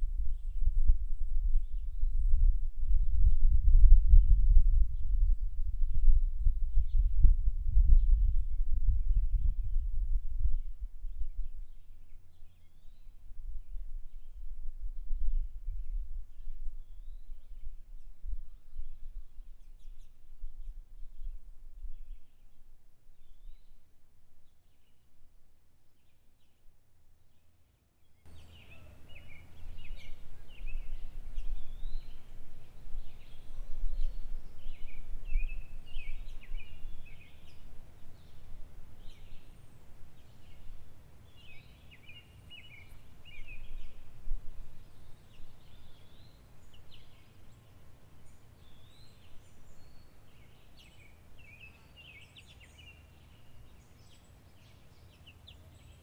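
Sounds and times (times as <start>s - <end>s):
small birds chirping: 27.2s - 56.0s.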